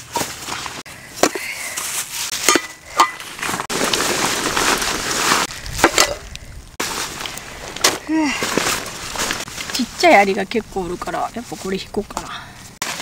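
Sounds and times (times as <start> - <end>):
fabric sack rustling: 3.2 - 5.7, 6.8 - 10.4.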